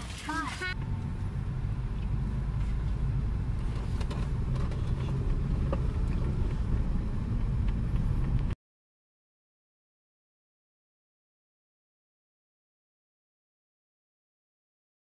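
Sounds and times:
car engine and road rumble: 0:00.0 - 0:08.6.

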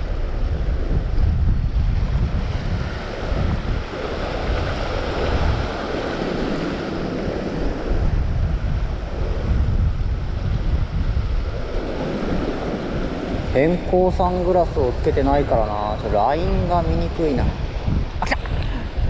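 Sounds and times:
waves breaking on rocks: 0:00.0 - 0:08.1, 0:11.2 - 0:19.0
wind buffeting the microphone: 0:00.0 - 0:19.0.

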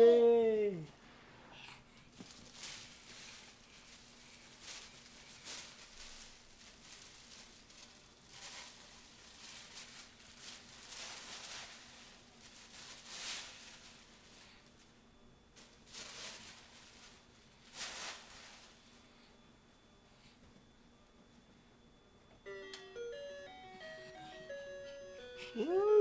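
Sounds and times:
paper sheet rustling: 0:02.2 - 0:14.6.

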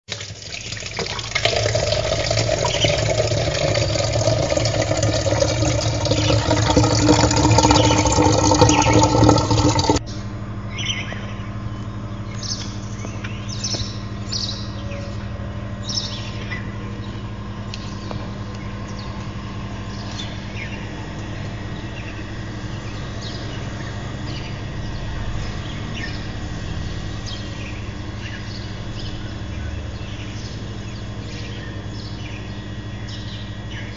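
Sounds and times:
steady low hum: 0:00.6 - 0:33.9
birds chirping: 0:00.8 - 0:33.9
loud dense sound: 0:24.0 - 0:30.6.

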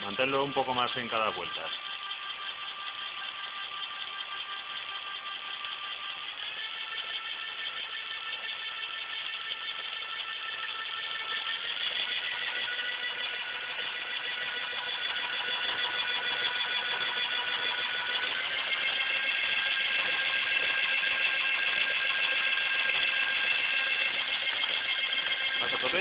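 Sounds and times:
electric bike motor whine: 0:00.0 - 0:26.0.

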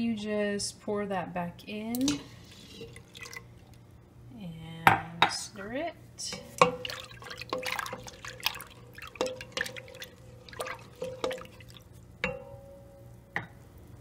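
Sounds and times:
milk sloshing and dripping: 0:02.3 - 0:03.8, 0:06.5 - 0:12.4
spatula knocking metal pot: 0:06.3 - 0:11.6, 0:12.2 - 0:12.8.

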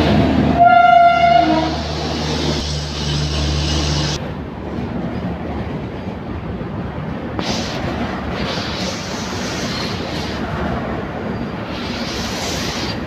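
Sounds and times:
train wheels on rails: 0:00.0 - 0:13.0
locomotive horn: 0:00.6 - 0:01.9.

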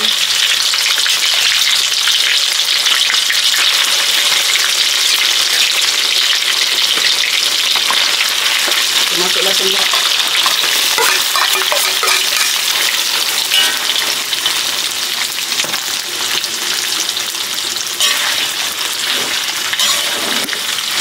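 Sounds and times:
meat sizzling in hot oil: 0:00.0 - 0:21.0
metal spatula scraping wok: 0:07.8 - 0:14.4, 0:17.9 - 0:21.0.

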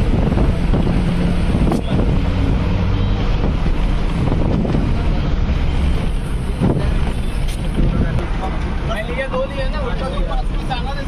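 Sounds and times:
wind rushing over microphone: 0:00.0 - 0:08.4
bus engine running: 0:00.0 - 0:11.0
road noise: 0:00.0 - 0:11.0.

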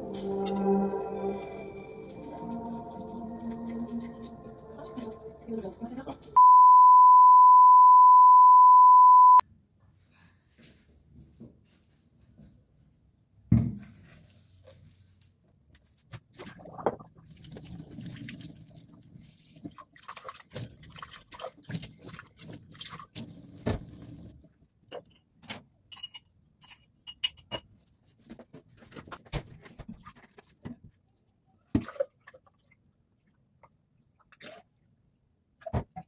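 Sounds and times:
water splashing in metal sink: 0:16.3 - 0:24.4.

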